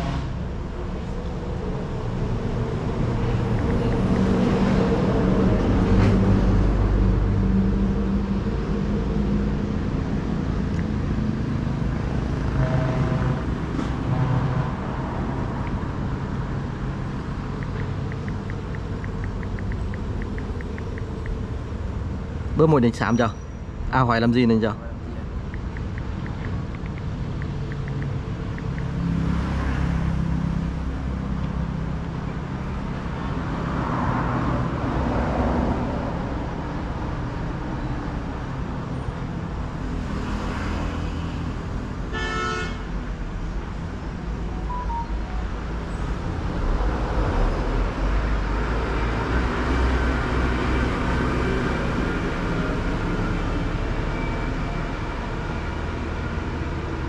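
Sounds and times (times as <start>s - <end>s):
road traffic rumble: 0.0s - 57.0s
vehicle horn toot: 42.1s - 42.9s.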